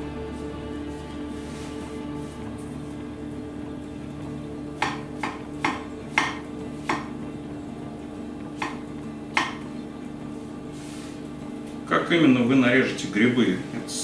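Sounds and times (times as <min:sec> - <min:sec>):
knife tapping on wooden cutting board: 0:04.8 - 0:07.1, 0:09.4 - 0:09.6.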